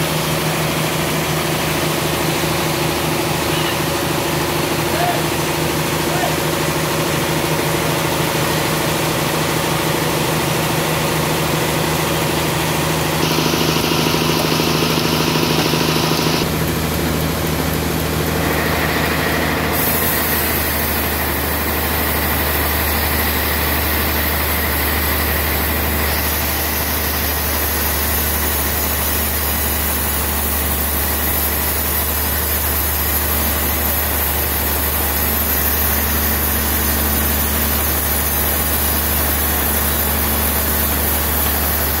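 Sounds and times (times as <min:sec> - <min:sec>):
band saw cutting log: 0:11.5 - 0:42.0.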